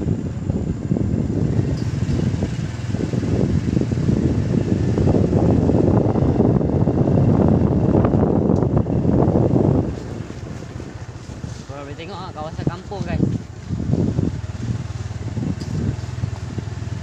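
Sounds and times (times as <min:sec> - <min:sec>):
motorcycle engine running: 0:00.0 - 0:17.0
wind buffeting microphone: 0:00.0 - 0:17.0.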